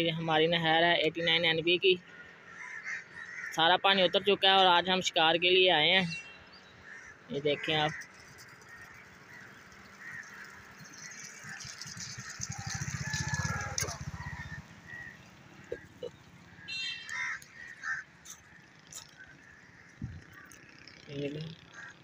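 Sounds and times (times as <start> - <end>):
waterfowl honking: 6.8 - 20.6.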